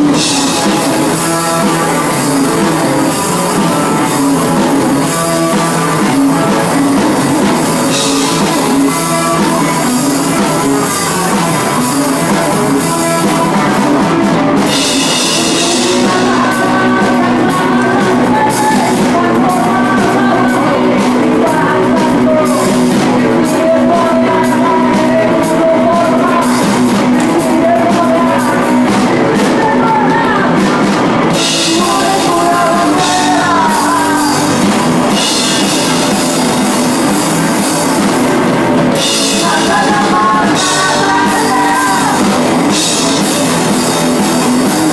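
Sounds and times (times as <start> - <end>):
drum kit: 0.0 - 44.9
electric guitars: 0.0 - 44.9
held melody line: 0.0 - 44.9.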